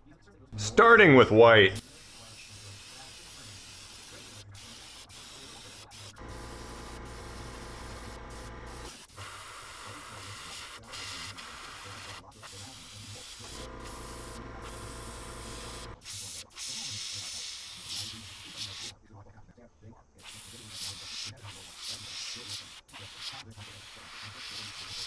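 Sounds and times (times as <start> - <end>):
airbrush hissing: 1.8 - 18.9
motor hum: 6.2 - 9.0, 13.5 - 16.0.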